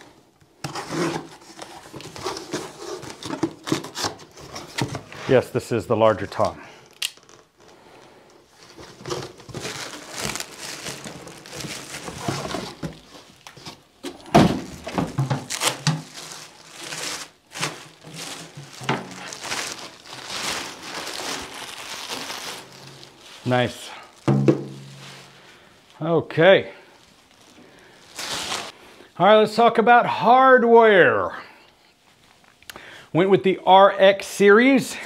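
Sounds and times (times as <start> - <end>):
plastic wrapping crinkling: 0.0 - 5.0, 6.1 - 26.0, 26.9 - 28.8
drum knocks: 24.3 - 24.9.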